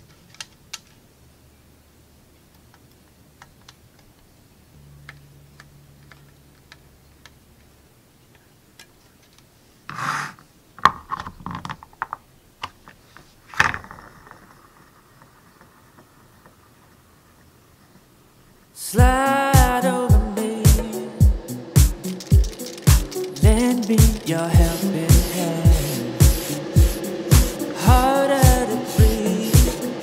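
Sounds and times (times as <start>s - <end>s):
small plastic clicks and taps: 2.5s - 4.3s
loud scraping rub: 9.9s - 10.4s.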